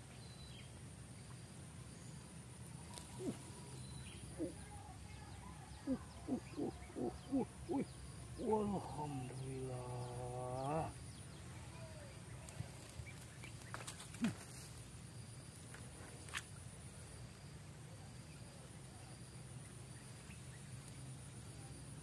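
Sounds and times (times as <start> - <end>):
steady low hum: 0.0 - 13.7.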